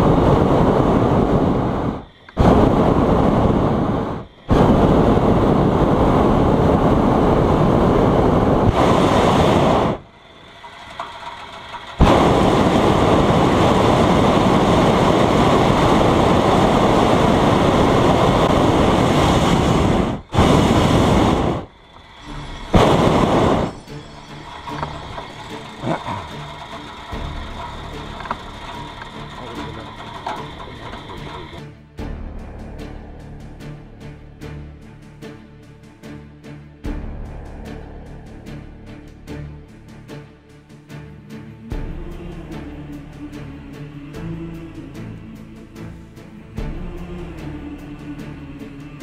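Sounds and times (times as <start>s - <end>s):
propane burner blasts: 0.0s - 31.6s.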